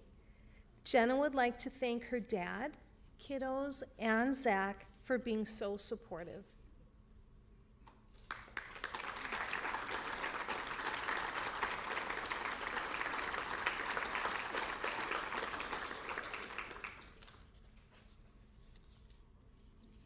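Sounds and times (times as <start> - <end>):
audience applauding: 8.2 - 17.6.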